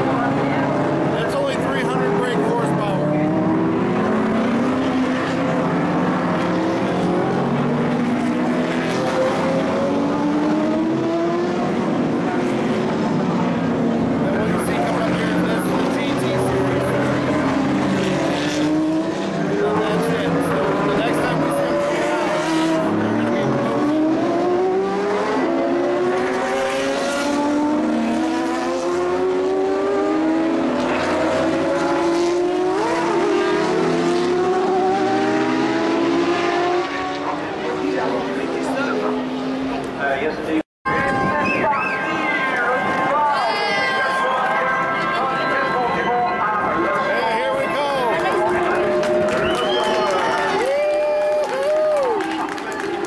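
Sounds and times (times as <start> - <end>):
racing car engines passing: 0.0 - 53.0.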